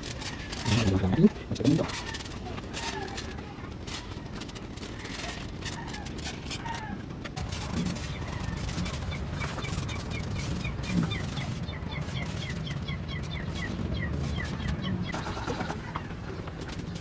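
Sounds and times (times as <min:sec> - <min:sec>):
bird chirping: 0:08.0 - 0:16.6.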